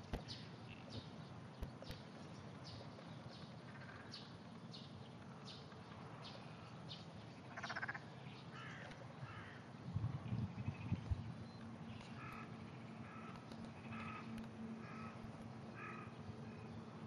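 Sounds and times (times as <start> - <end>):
frogs calling: 3.6 - 4.4, 7.4 - 9.6, 10.5 - 11.1, 11.9 - 16.7.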